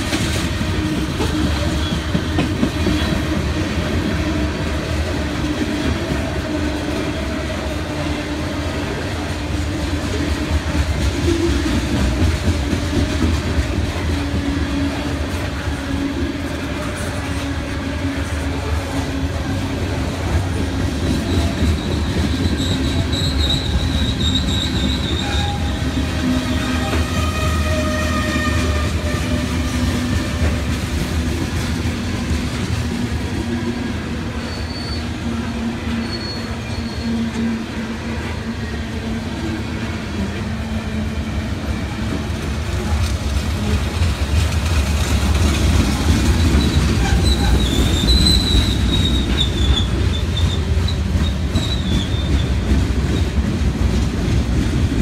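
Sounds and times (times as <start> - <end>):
freight train wheels rumbling: 0.0 - 55.0
wheel squeal: 21.2 - 25.8, 34.4 - 35.2, 35.9 - 37.3, 46.3 - 52.7.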